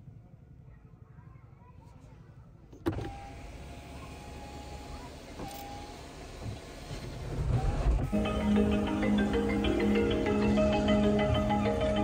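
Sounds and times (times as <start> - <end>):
sunroof electric motor running: 8.0 - 12.0.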